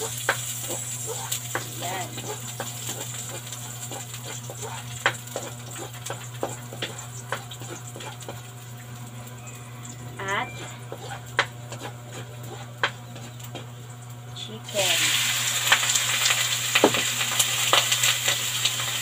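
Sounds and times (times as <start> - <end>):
spatula scraping and knocking pan: 0.0 - 8.6, 10.2 - 13.8
garlic and onion sizzling in oil: 0.0 - 19.0.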